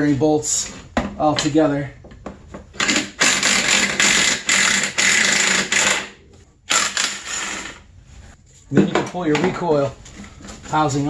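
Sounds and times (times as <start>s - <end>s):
cordless power tool spinning: 2.8s - 6.1s, 6.7s - 7.8s.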